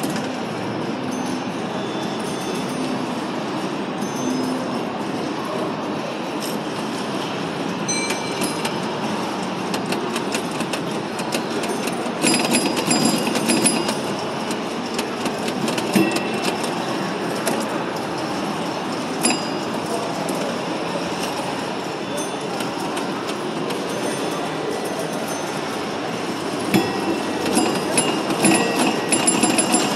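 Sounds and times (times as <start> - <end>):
bell-like dings: 7.9 - 8.8, 19.2 - 19.7, 26.7 - 29.9
pinball machine clattering: 7.9 - 29.9.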